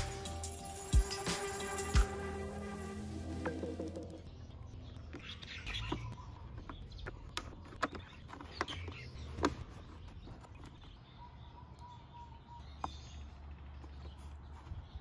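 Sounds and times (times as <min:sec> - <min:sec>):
plastic parts clicking and tapping: 0:05.8 - 0:09.7.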